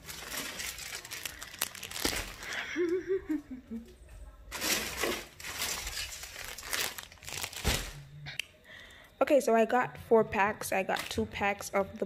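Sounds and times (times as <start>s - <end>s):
plastic packaging crinkling: 0.0s - 2.7s, 4.5s - 8.1s.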